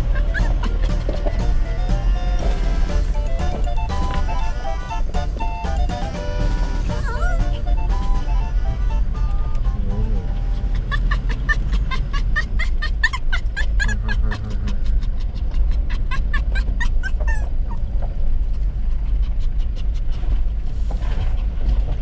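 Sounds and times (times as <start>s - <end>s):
dog yipping: 0.0s - 1.0s, 10.6s - 18.0s
low rumble: 0.0s - 22.0s.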